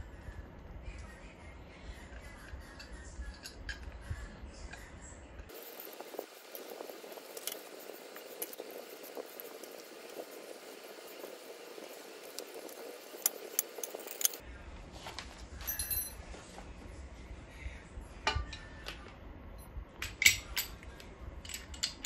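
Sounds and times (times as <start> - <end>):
metal clamp rattling and clinking: 11.8 - 14.4, 20.0 - 20.8, 21.4 - 22.0
ringing metallic clink: 15.7 - 16.2.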